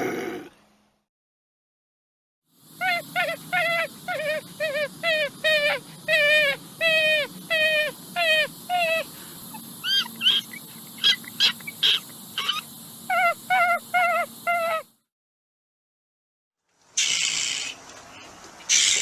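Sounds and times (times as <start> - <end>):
raccoon crying: 2.8 - 14.9, 18.7 - 19.0
high thin squeaks: 9.8 - 14.8.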